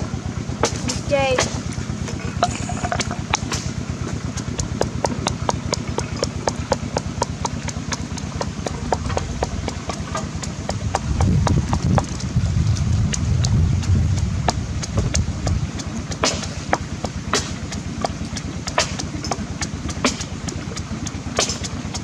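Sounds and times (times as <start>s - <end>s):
pestle pounding in wooden mortar: 0.0s - 22.0s
deeper thudding: 0.6s - 17.6s.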